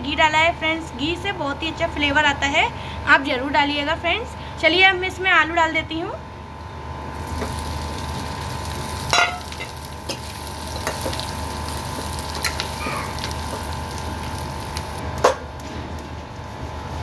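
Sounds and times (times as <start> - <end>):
potatoes sizzling in oil: 7.1 - 15.2.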